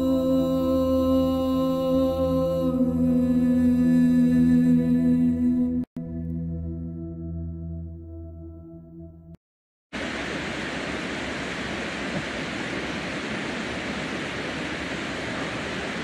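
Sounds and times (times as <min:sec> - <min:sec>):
water rushing over a dam: 0:10.0 - 0:16.0.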